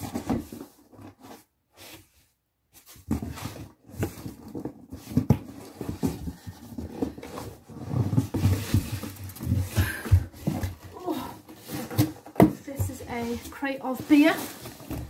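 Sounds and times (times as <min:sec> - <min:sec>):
cardboard and packing rustling: 0:00.0 - 0:15.0
knocks and bumps in box: 0:03.0 - 0:15.0.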